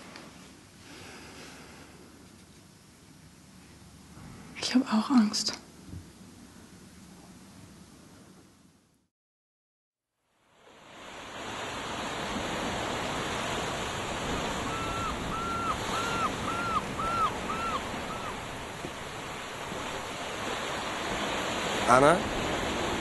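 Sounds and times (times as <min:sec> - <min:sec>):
wind: 0:00.0 - 0:09.0, 0:10.2 - 0:23.0
surf on rough sea: 0:10.4 - 0:23.0
bird calling: 0:14.2 - 0:20.0.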